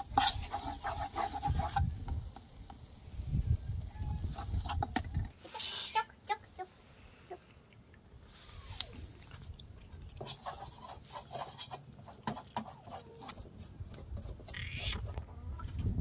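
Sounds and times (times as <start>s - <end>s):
faint animal calls: 14.5s - 15.2s.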